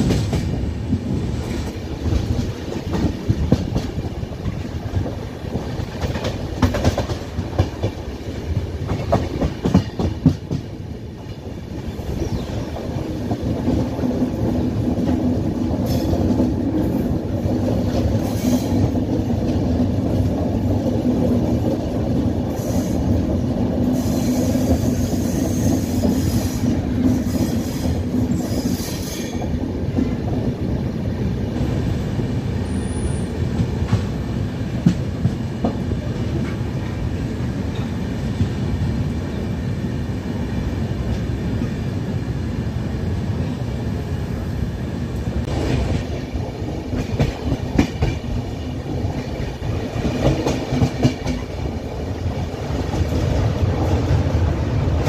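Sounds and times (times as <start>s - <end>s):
clickety-clack over points: 0.0s - 5.2s, 5.8s - 11.4s, 34.8s - 36.6s, 46.9s - 48.5s, 49.1s - 51.7s
train rumble on rails: 0.0s - 55.0s.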